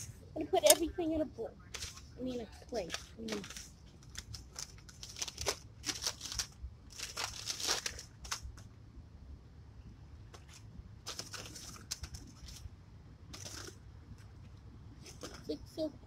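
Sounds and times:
paper bag and wrappers rustling: 0:01.6 - 0:08.6, 0:10.4 - 0:12.7, 0:13.3 - 0:13.8, 0:15.0 - 0:15.5.

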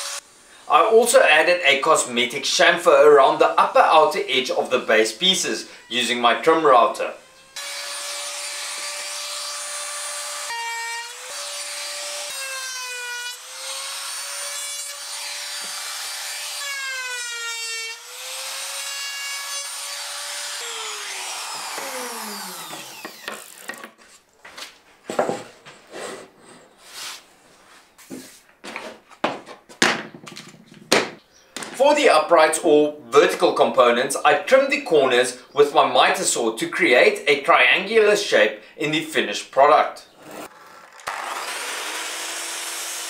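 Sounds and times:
trim router whining: 0:04.8 - 0:23.9, 0:40.5 - 0:43.0
wood knocks and taps: 0:28.7 - 0:31.8.

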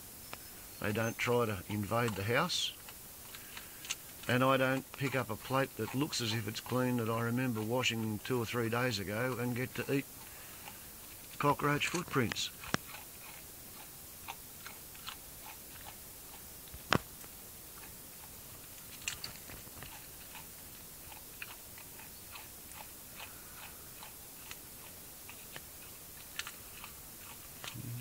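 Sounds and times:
faint crunches and clicks: 0:01.2 - 0:27.8.

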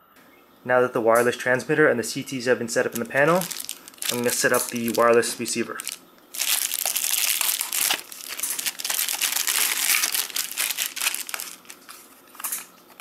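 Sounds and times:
plastic bag crinkling: 0:02.8 - 0:13.0.

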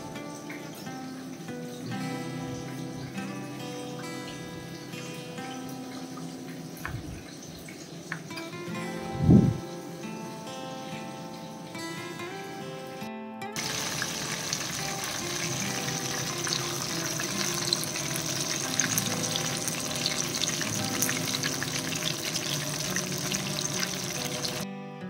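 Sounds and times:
fish frying in hot oil: 0:13.6 - 0:24.6.

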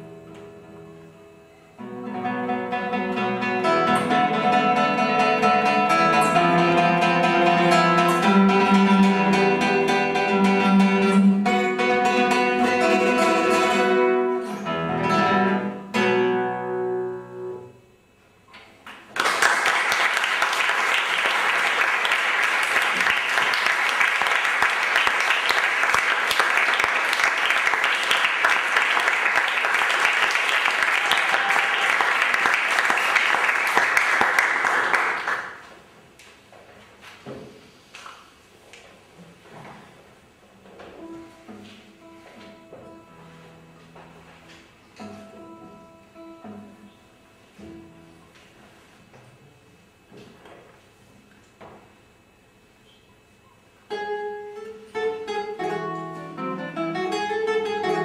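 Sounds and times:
classical guitar solo: 0:00.0 - 0:17.8, 0:40.8 - 0:48.5, 0:53.9 - 0:58.0
audience applauding: 0:18.9 - 0:35.7.

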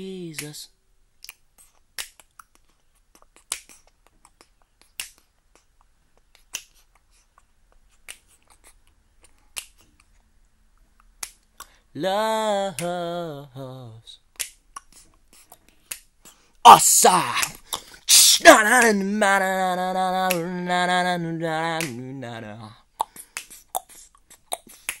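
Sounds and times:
finger snaps: 0:01.2 - 0:07.0, 0:08.0 - 0:08.4, 0:09.3 - 0:10.0, 0:11.0 - 0:11.8, 0:12.7 - 0:13.0, 0:14.3 - 0:16.4, 0:20.2 - 0:20.6, 0:21.8 - 0:22.0, 0:23.0 - 0:25.0.

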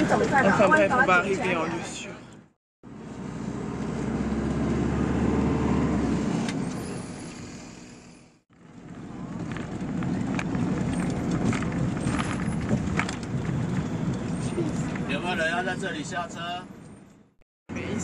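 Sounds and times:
bus engine hum: 0:00.0 - 0:18.0
rattles and knocks: 0:09.4 - 0:13.9.

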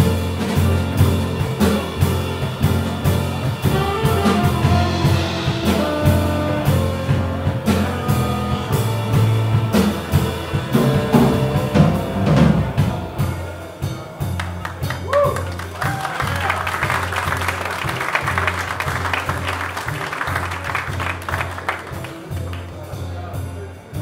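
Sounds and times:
tenor saxophone: 0:00.0 - 0:13.7
double bass walking line: 0:00.0 - 0:15.7, 0:16.4 - 0:23.2
drum kit with cymbals: 0:00.0 - 0:24.0
piano: 0:00.0 - 0:24.0.

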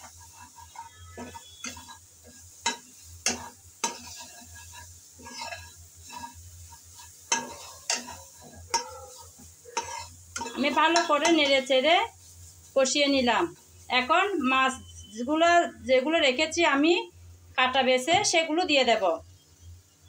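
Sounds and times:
spatula scraping metal pan: 0:00.0 - 0:12.4
spices sizzling: 0:00.0 - 0:20.0.

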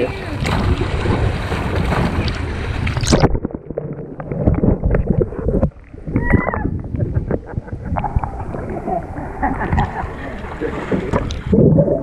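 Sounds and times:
muffled underwater churning: 0:00.0 - 0:12.0
pool water splashing: 0:00.0 - 0:12.0.

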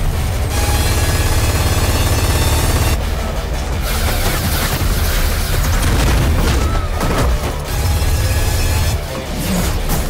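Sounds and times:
loud film music score: 0:00.0 - 0:10.0.

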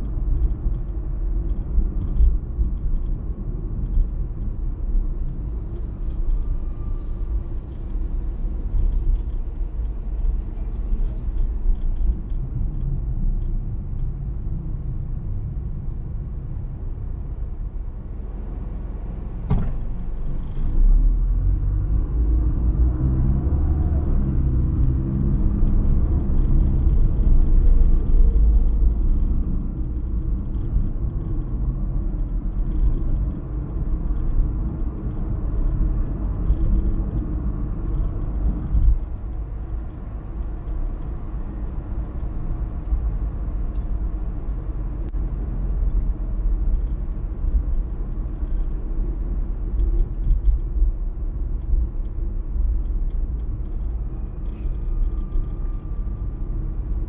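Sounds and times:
car engine and tyres rumbling: 0:00.0 - 0:57.0
short knock: 0:19.5 - 0:19.9.

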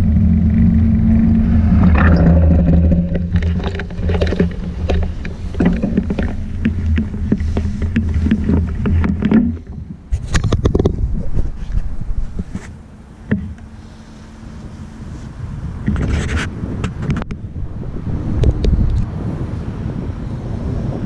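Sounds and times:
wind and rolling rumble: 0:00.0 - 0:21.0
clicks and rattles: 0:01.9 - 0:11.1.

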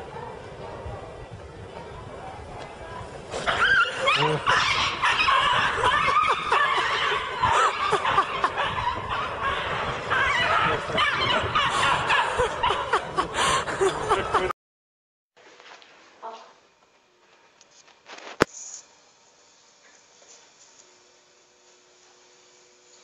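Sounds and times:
people laughing and giggling: 0:05.0 - 0:14.6.

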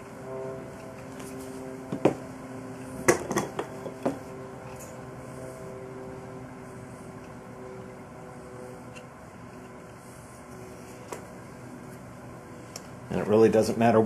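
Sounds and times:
steady hum: 0:00.0 - 0:14.0
knocks and taps on wooden workbench: 0:01.9 - 0:02.2.

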